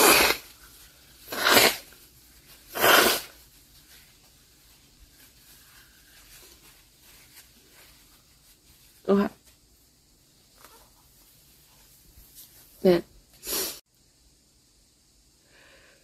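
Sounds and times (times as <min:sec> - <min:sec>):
woman sneezing: 0:00.0 - 0:00.4, 0:01.3 - 0:01.8, 0:02.8 - 0:03.3.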